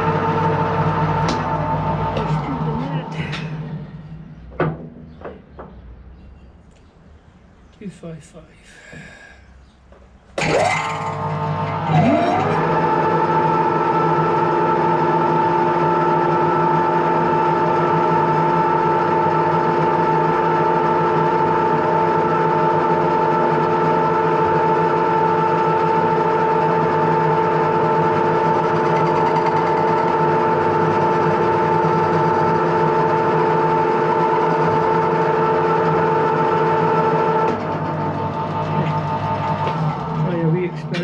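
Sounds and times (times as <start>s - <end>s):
metal lathe whine: 10.4s - 41.0s.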